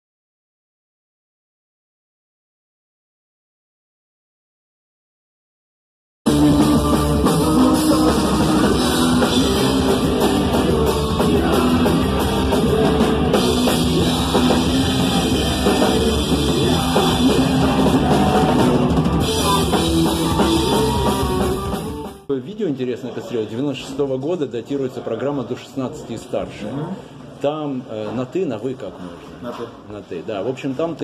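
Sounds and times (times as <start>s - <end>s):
shouted vocals: 6.3s - 22.2s
bass guitar: 6.3s - 22.3s
distorted electric guitar: 6.3s - 22.3s
pounding drum kit: 6.3s - 22.3s.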